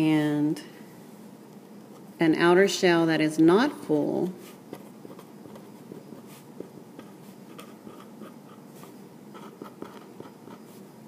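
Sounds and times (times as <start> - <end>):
marker scratching on paper: 4.4 - 10.8.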